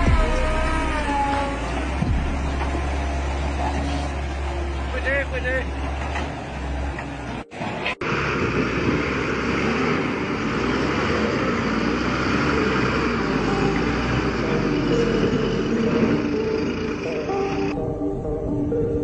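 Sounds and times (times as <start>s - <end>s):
diesel engine running: 0.0s - 18.5s.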